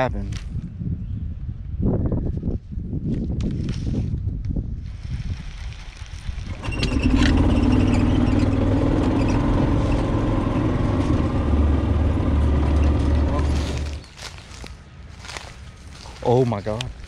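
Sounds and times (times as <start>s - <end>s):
golf cart motor drone: 6.5s - 14.0s.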